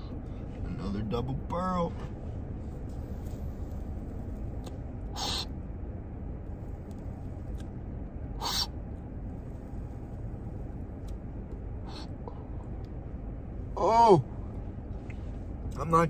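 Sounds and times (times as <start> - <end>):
steady low hum: 0.0 - 16.0
man drawing breath hissing: 5.2 - 5.5, 8.4 - 8.7.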